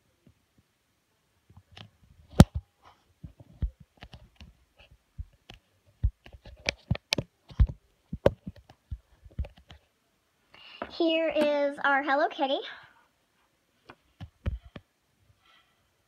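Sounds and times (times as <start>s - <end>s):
plastic toys set on tabletop: 1.5s - 12.5s.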